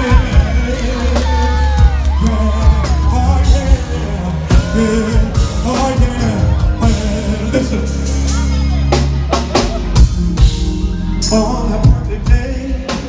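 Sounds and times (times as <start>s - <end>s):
person singing: 0.0s - 9.9s, 11.0s - 13.0s
loud r and b music: 0.0s - 13.0s.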